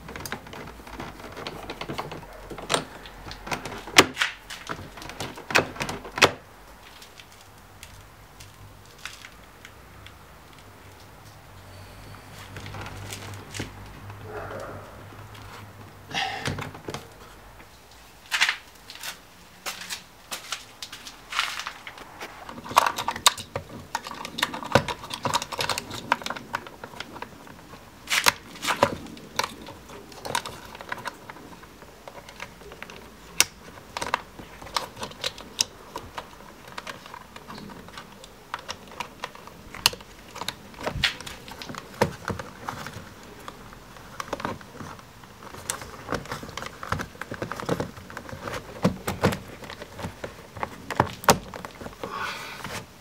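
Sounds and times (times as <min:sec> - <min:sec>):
plastic clicks and rattles: 0:00.0 - 0:11.4, 0:22.5 - 0:52.8.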